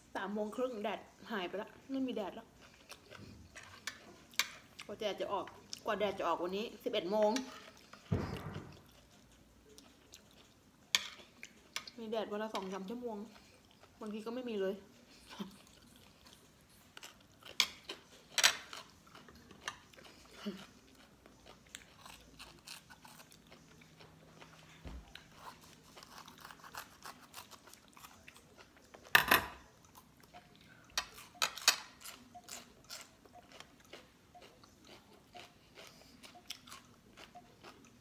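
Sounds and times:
raw vegetables crunching: 17.0s - 29.1s.

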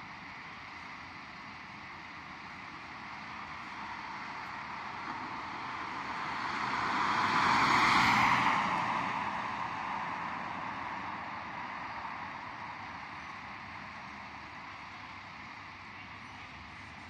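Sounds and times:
vehicle driving past: 4.6s - 12.2s.

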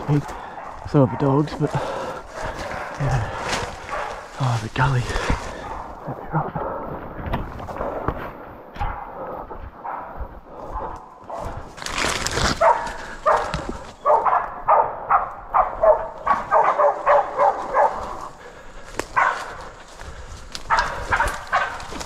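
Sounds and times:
dogs barking: 0.0s - 4.6s, 5.2s - 6.2s, 8.7s - 11.7s, 12.5s - 22.0s.

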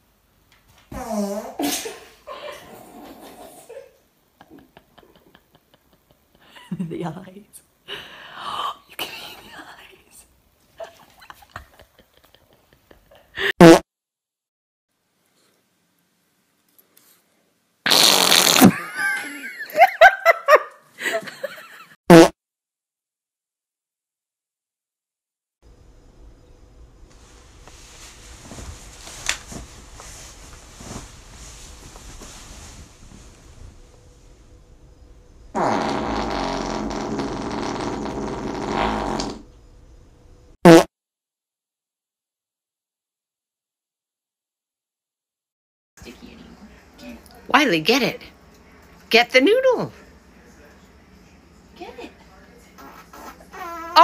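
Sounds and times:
raspy fart: 0.9s - 1.8s, 13.5s - 13.8s, 17.8s - 18.9s, 22.1s - 22.4s, 35.5s - 39.5s, 40.6s - 40.9s, 52.8s - 54.0s
person laughing: 18.6s - 21.9s.

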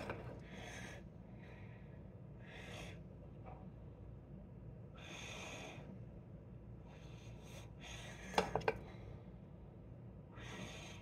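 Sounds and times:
breathing close to microphone: 0.4s - 3.0s.

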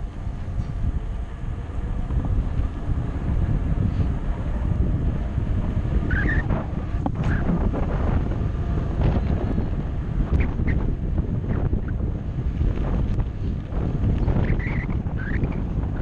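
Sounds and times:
tyre and road rumble: 0.0s - 16.0s
wind rushing over microphone: 0.0s - 16.0s
high squeaks: 6.0s - 6.6s.

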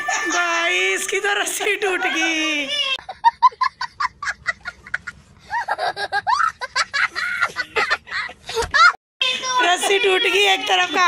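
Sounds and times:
boy laughing hysterically: 2.0s - 10.2s.

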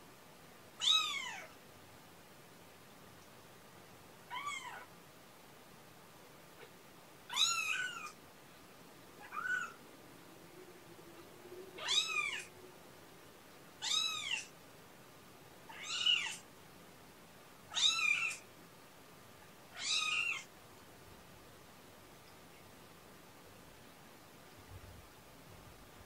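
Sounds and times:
kitten meowing: 0.8s - 1.5s, 4.3s - 4.9s, 7.3s - 8.2s, 9.2s - 9.8s, 11.8s - 12.5s, 13.8s - 14.5s, 15.7s - 16.4s, 17.7s - 18.4s, 19.8s - 20.5s.

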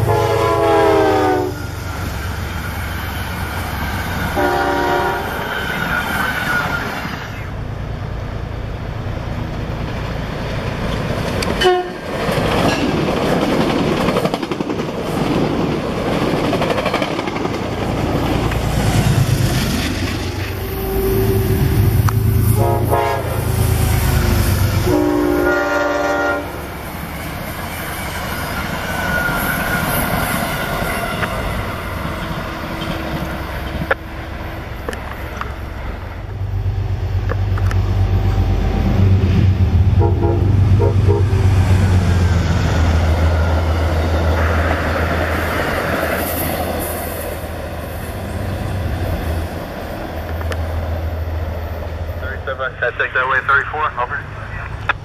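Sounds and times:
train horn: 0.0s - 1.8s, 4.3s - 5.5s, 11.6s - 12.0s, 20.5s - 26.8s, 39.9s - 41.5s
diesel train engine rumble: 0.0s - 55.0s.

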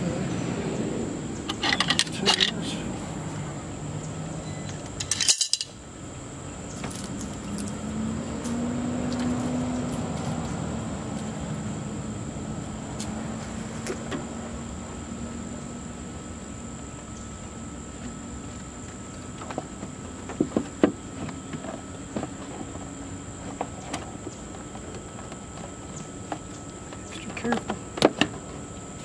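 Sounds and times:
low steady hum: 0.0s - 29.0s
metal tools clinking: 1.5s - 2.6s, 5.0s - 5.8s
sharp metal clatter: 5.0s - 5.8s.

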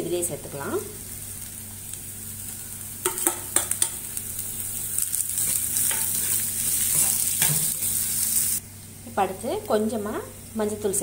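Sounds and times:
vegetables sizzling in hot oil: 0.1s - 10.9s
steel spoon scraping a pan: 4.8s - 8.6s.

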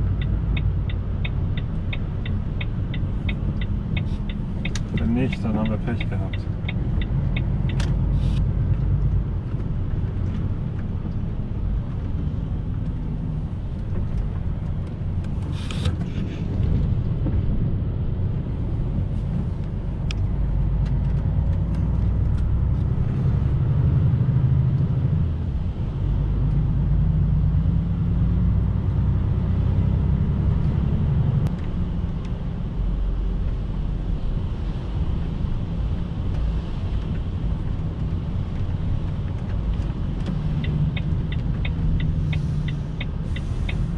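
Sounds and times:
lorry engine and road drone: 0.0s - 43.9s
short hiss: 15.5s - 15.9s.

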